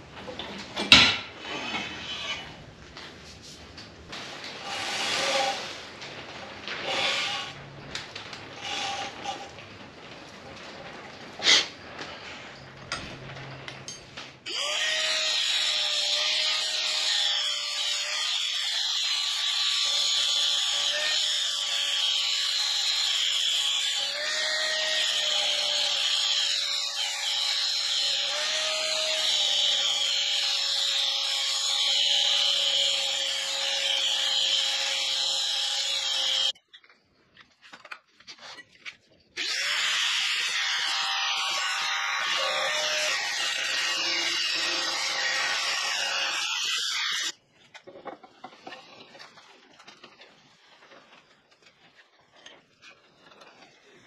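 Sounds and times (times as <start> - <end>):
angle grinder cutting metal: 4.6 - 5.8, 6.8 - 7.6, 14.5 - 36.6, 39.4 - 47.4.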